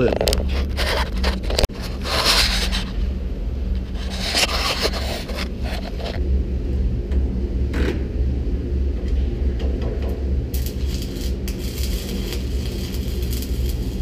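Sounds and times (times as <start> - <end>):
rustling and scraping: 0.0 - 6.2
industrial machinery rumble: 0.0 - 14.0
welding arc crackling hiss: 10.5 - 14.0.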